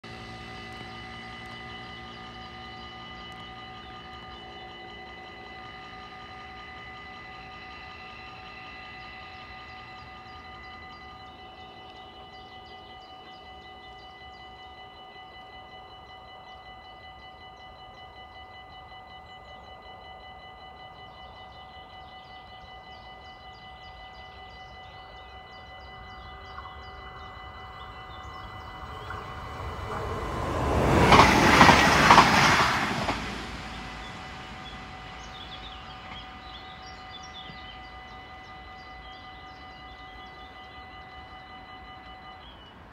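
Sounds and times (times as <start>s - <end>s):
train passing: 0.0s - 42.9s
level crossing bell ringing: 9.4s - 42.9s.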